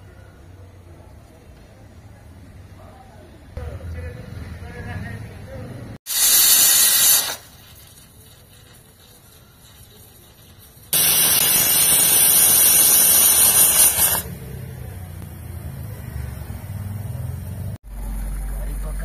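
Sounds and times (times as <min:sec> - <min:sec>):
pressure cooker steam hiss: 0:06.1 - 0:14.3.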